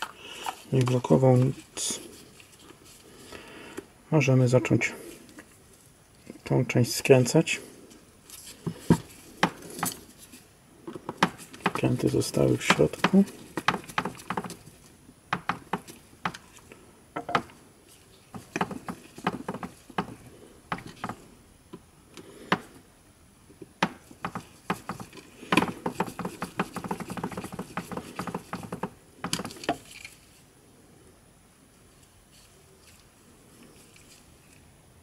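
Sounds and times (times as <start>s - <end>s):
plastic parts clicking and tapping: 23.6s - 30.2s.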